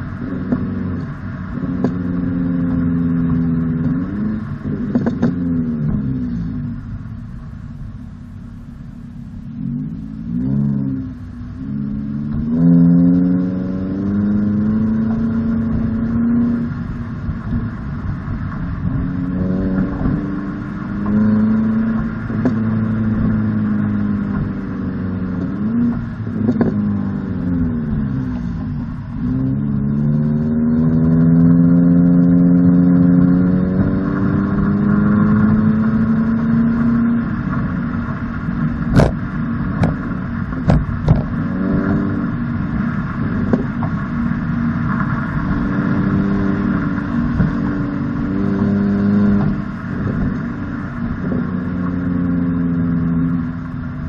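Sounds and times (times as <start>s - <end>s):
car exhaust revving through gears: 0.0s - 54.0s
exhaust pops: 0.2s - 2.2s, 3.4s - 6.8s, 25.3s - 29.6s, 37.2s - 46.0s, 46.6s - 47.6s.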